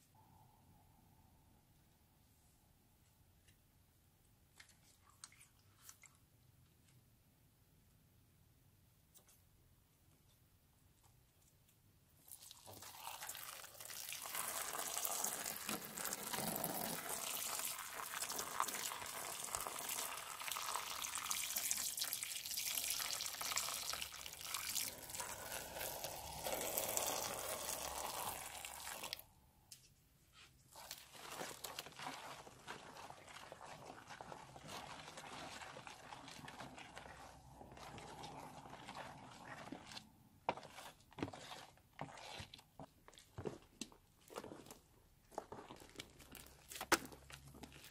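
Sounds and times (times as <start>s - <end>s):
foam stirred with spatula: 12.2s - 29.3s, 30.3s - 47.9s
liquid gushing and splashing: 12.3s - 29.2s, 30.8s - 40.0s.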